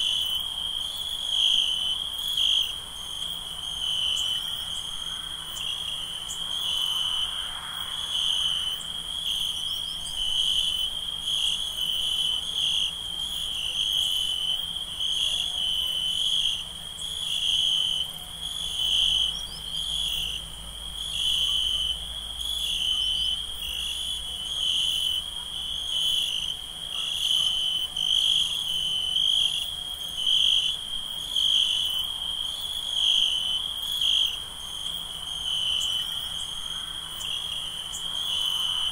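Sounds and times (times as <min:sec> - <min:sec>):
crickets chirping: 0:00.0 - 0:38.9
insects pulsing: 0:00.0 - 0:38.9.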